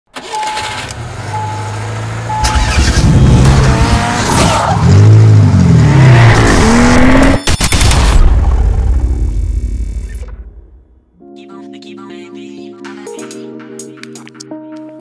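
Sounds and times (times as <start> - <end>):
car engine revving: 0.2 - 7.4.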